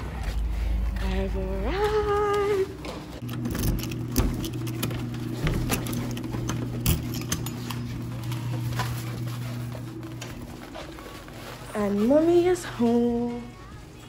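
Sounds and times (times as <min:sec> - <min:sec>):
steady low hum: 0:00.0 - 0:13.5
keys jingling: 0:03.2 - 0:08.2.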